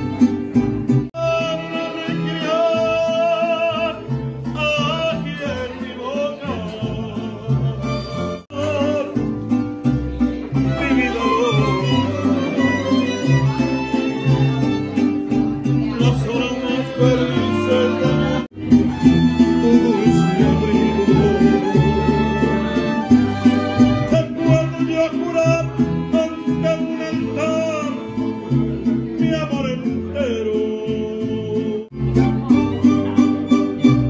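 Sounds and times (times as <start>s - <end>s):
strummed guitars: 0.0s - 34.0s
violins playing melody: 10.1s - 29.2s.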